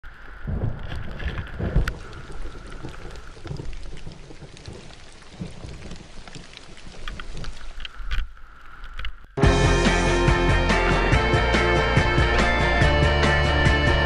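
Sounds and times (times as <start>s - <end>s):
wind on microphone: 0.3s - 6.2s.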